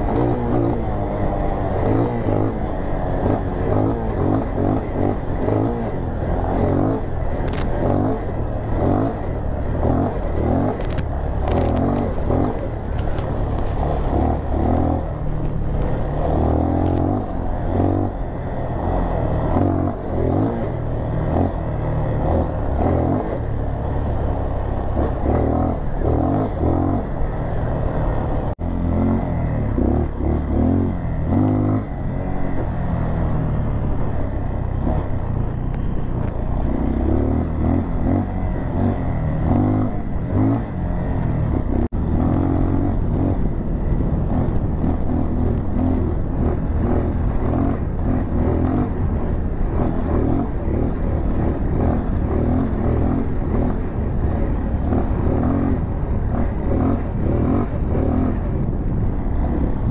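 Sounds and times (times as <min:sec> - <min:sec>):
dirt bike engine revving: 0:00.0 - 0:32.4
wind buffeting microphone: 0:32.1 - 0:59.9.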